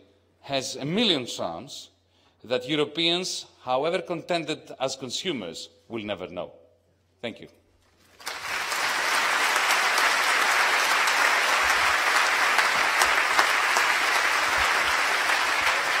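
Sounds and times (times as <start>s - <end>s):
audience applauding: 8.2s - 16.0s
single claps: 8.2s - 16.0s.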